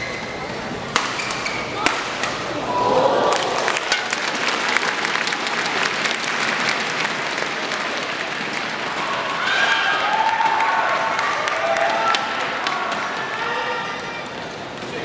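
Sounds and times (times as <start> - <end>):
audience applauding: 3.2 - 13.2.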